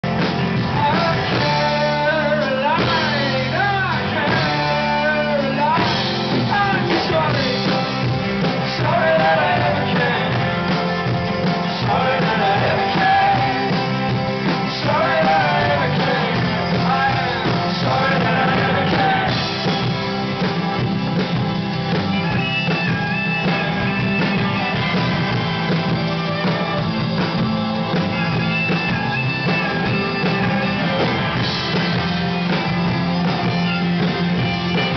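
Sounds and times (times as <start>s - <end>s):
rock band playing: 0.0s - 34.9s
person singing: 0.6s - 10.8s, 11.4s - 19.8s.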